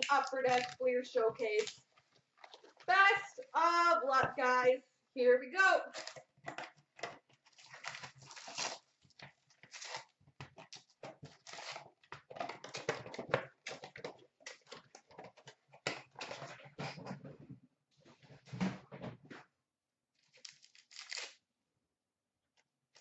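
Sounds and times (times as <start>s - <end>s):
pack wrappers crinkling: 0.0s - 0.8s, 7.4s - 13.1s, 20.2s - 21.4s
cardboard box tearing: 7.5s - 8.9s.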